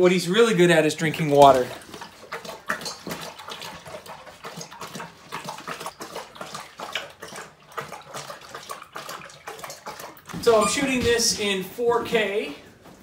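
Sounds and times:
dog lapping water: 0.4s - 11.5s.

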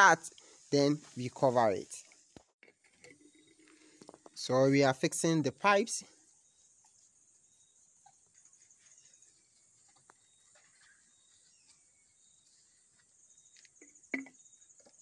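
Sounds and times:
crickets chirping: 3.0s - 15.0s.

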